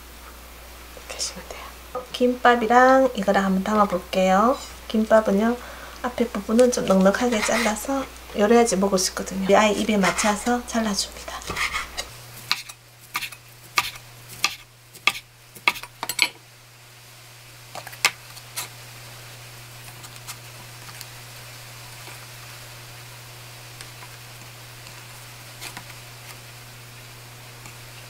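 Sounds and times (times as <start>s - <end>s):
steady low hum: 0.0s - 28.0s
knife slicing through roll: 7.2s - 7.8s, 11.4s - 15.9s.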